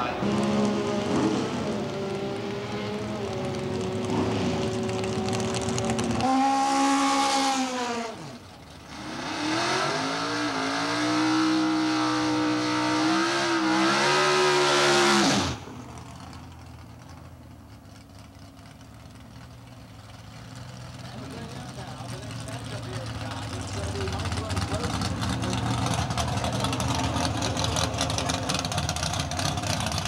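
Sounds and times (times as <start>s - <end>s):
low engine rumble: 0.0s - 6.4s, 15.5s - 30.0s
drag race car engine revving: 0.0s - 17.2s, 17.9s - 30.0s.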